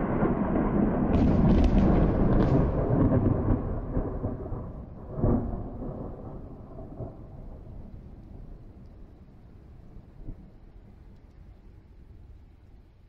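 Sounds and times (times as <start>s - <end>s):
thunder rolling: 0.0s - 8.8s.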